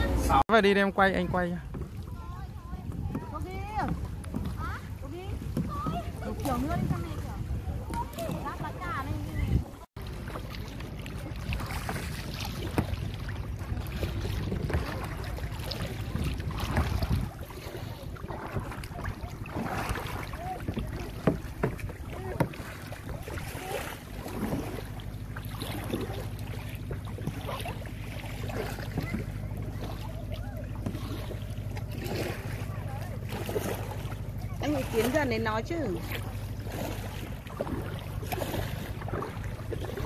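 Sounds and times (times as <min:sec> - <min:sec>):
paddles splashing in water: 0:00.0 - 0:40.0
wind buffeting microphone: 0:01.1 - 0:09.9, 0:10.9 - 0:23.9
water drips and slaps: 0:01.1 - 0:40.0.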